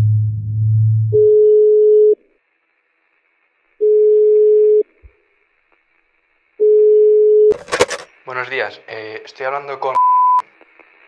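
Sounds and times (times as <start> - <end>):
telephone ringback tone: 6.6 - 7.5.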